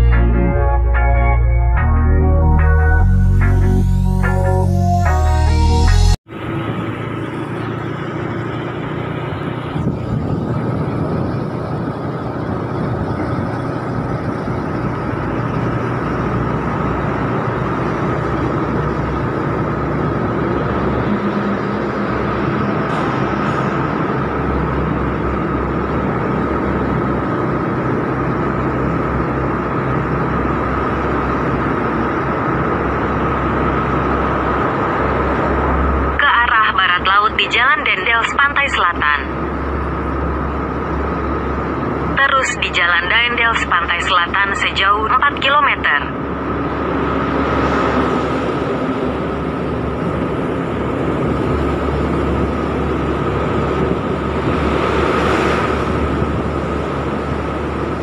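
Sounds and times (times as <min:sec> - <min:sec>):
motorcycle riding at speed: 0:06.3 - 0:36.2, 0:46.2 - 0:58.0
wind noise: 0:07.7 - 0:36.1, 0:46.2 - 0:58.0.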